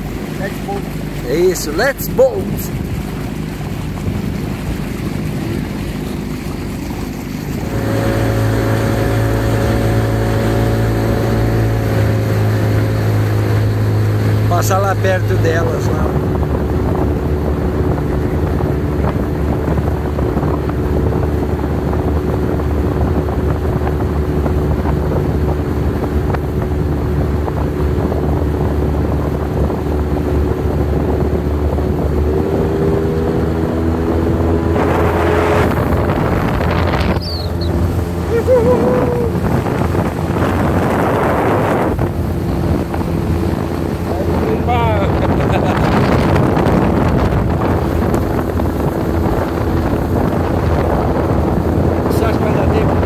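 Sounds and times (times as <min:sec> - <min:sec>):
outboard motor running: 0:00.0 - 0:53.0
water rushing and spray: 0:00.0 - 0:53.0
wind on microphone: 0:00.0 - 0:53.0.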